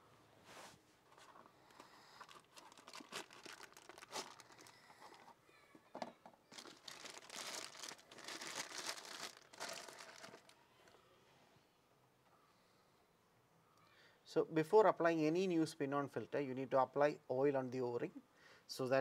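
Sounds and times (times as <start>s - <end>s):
cardboard and plastic crinkling: 1.1s - 5.4s, 6.5s - 10.6s.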